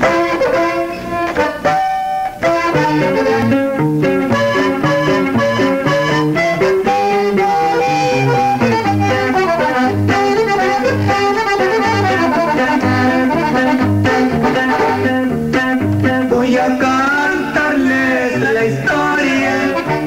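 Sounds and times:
accordion melody: 0:00.0 - 0:20.0
bass notes: 0:00.0 - 0:20.0
guitar: 0:00.0 - 0:20.0.

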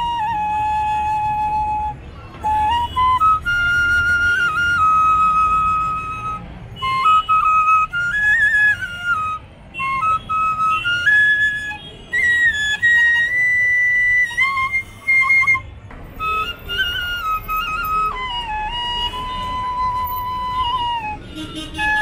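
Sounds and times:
bamboo flute melody: 0:00.0 - 0:22.0.

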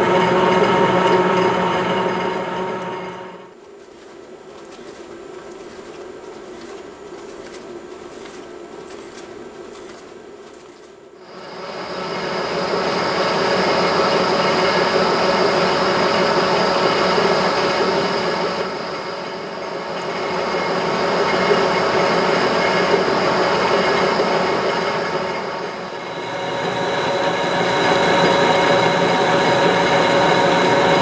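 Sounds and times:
metal lathe running: 0:00.0 - 0:03.6, 0:11.3 - 0:31.0.

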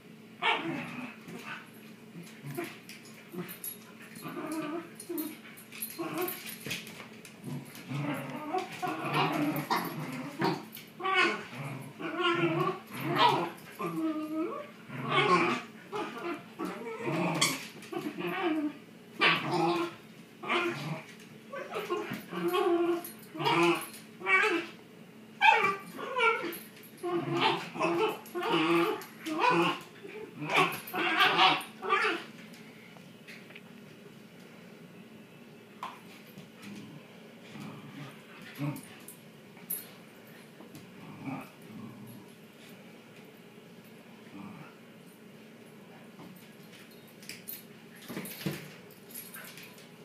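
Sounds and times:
dogs play vocalizing: 0:00.4 - 0:24.8, 0:25.4 - 0:32.5, 0:35.8 - 0:42.8.

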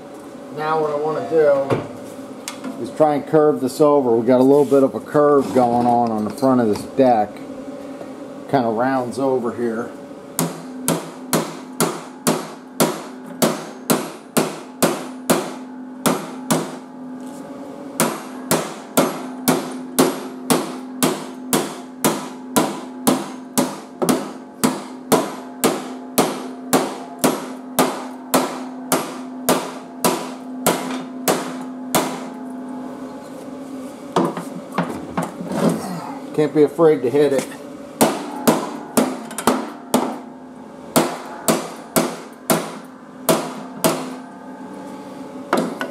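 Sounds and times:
hammer striking sheet metal: 0:18.0 - 0:32.4, 0:38.0 - 0:40.3, 0:40.9 - 0:44.2.

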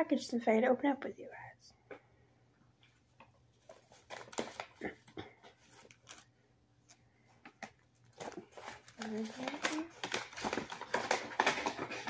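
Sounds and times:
plastic package rustling: 0:03.6 - 0:04.8, 0:05.4 - 0:06.3, 0:06.9 - 0:12.0.

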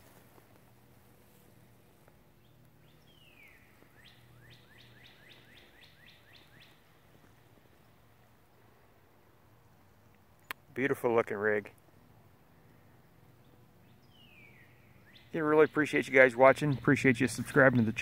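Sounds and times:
songbird whistling: 0:02.9 - 0:06.8.

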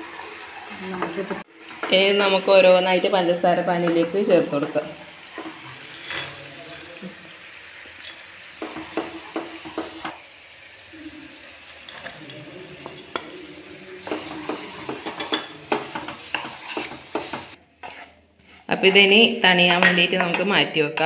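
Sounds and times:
faint sizzle: 0:00.0 - 0:18.2
spatula scraping frying pan: 0:05.2 - 0:06.8, 0:11.1 - 0:19.4.

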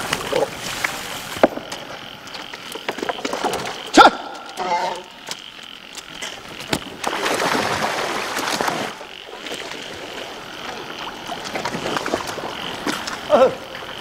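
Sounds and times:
water splashing and streaming: 0:00.0 - 0:04.4, 0:05.3 - 0:14.0
high-pitched pulsing chorus: 0:03.6 - 0:05.4
wet wings flapping: 0:05.3 - 0:13.3.

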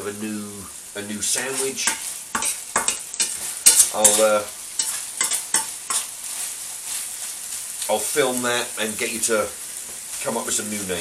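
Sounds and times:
meat sizzling in a frying pan: 0:00.0 - 0:11.0
utensil scraping through meat: 0:01.4 - 0:08.4.

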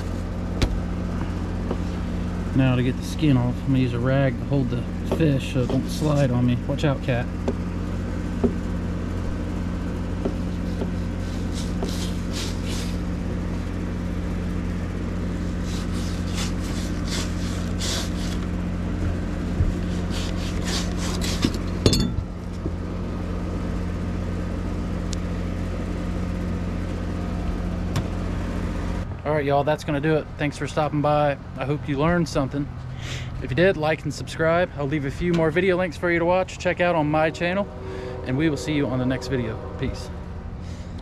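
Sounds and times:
steady low hum: 0:00.0 - 0:41.0
knife scraping fish skin: 0:10.6 - 0:13.1, 0:15.4 - 0:18.5, 0:19.8 - 0:21.8.

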